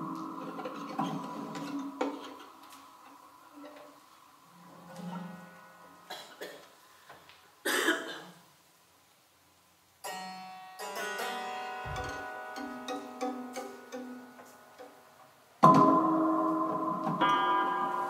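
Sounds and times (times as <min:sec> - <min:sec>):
sparse chamber music with electronics: 0:00.0 - 0:06.2, 0:10.0 - 0:18.0
ringing pitched notes: 0:10.0 - 0:18.0.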